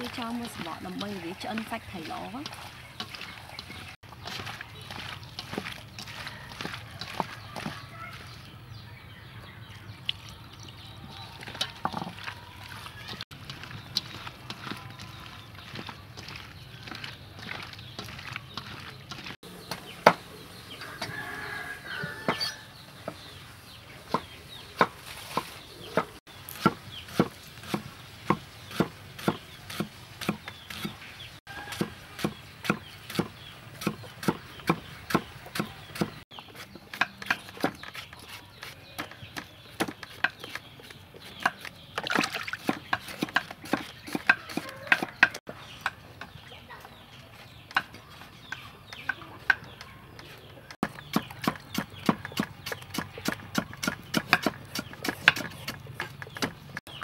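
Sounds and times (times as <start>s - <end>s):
cleaver chopping on wooden block: 50.8s - 56.6s.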